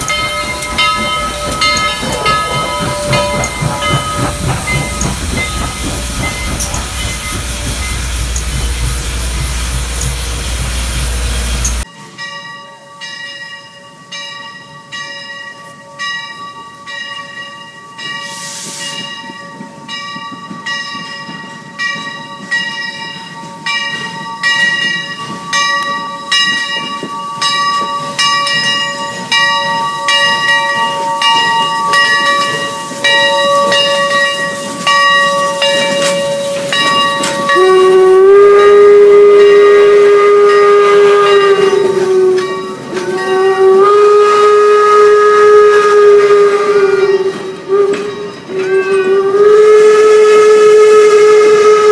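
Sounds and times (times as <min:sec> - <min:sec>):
steam hiss: 0:00.0 - 0:11.9, 0:18.0 - 0:19.4, 0:27.6 - 0:51.9
locomotive bell ringing: 0:00.0 - 0:44.0, 0:47.0 - 0:49.2
steam whistle blast: 0:37.4 - 0:51.9.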